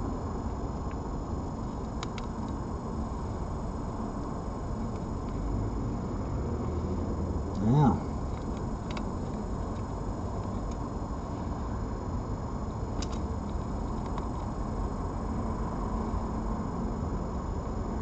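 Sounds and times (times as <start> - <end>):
low background rumble: 0.0 - 18.0
faint ticks: 8.3 - 10.8.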